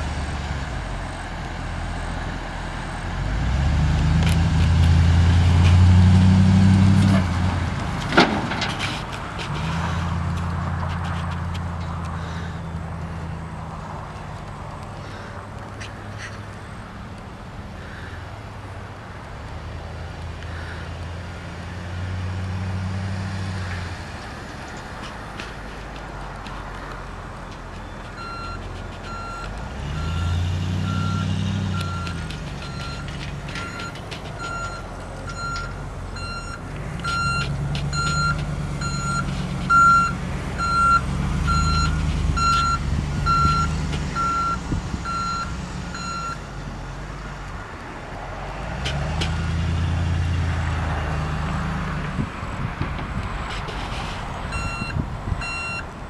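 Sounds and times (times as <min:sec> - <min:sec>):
truck engine revving: 0:00.0 - 0:14.9, 0:19.6 - 0:26.0, 0:27.6 - 0:47.5, 0:48.7 - 0:55.8
back-up alarm beeping: 0:28.2 - 0:46.4, 0:54.5 - 0:55.9.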